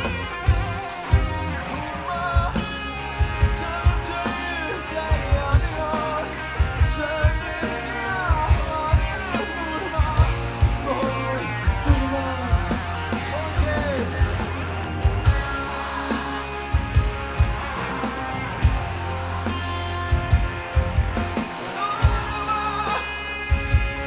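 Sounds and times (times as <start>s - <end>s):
person singing: 0.0s - 18.3s, 21.2s - 24.0s
live rock band playing: 0.0s - 24.0s.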